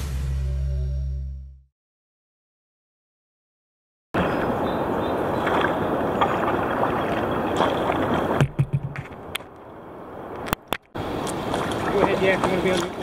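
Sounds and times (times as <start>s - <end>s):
river water rushing: 4.2s - 8.4s, 11.0s - 13.0s
small water splashes: 4.2s - 8.6s, 10.6s - 13.0s
wind: 4.2s - 13.0s.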